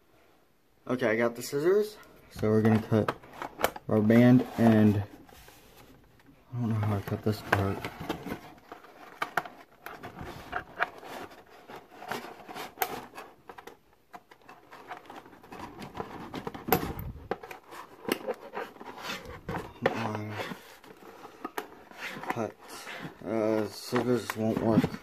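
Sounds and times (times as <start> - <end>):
cardboard rustling and knocking: 7.0 - 25.0.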